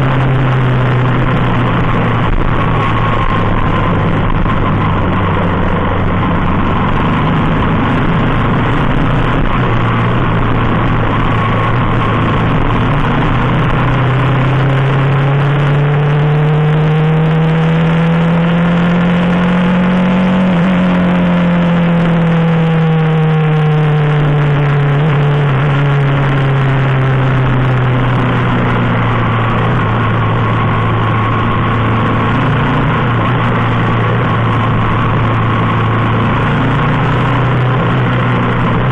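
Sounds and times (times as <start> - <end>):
motorcycle engine: 0.0 - 38.9
wind and road noise: 0.0 - 38.9.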